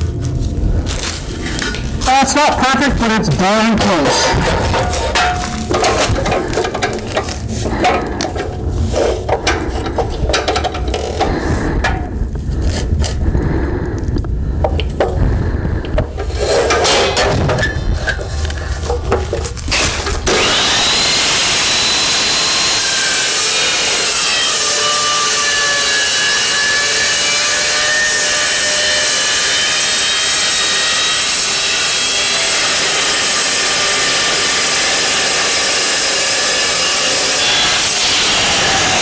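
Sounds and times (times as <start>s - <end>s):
chop saw cutting steel: 3.8s - 11.4s, 19.7s - 39.0s.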